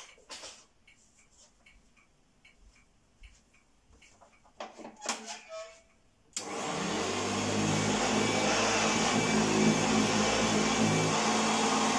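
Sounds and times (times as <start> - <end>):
vacuum cleaner motor humming: 6.4 - 11.9.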